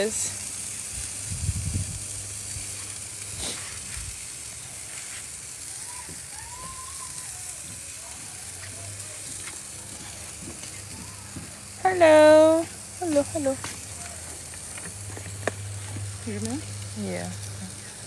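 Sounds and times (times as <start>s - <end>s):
meat sizzling on a barbecue: 0.0s - 18.0s
small pops of grease: 13.6s - 16.6s.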